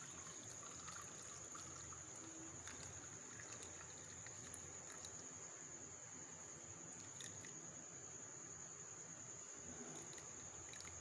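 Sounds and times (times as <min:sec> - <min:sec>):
tea trickling into glass: 0:00.0 - 0:05.3, 0:06.9 - 0:07.6, 0:09.9 - 0:11.0
faint high-pitched whine: 0:00.0 - 0:11.0.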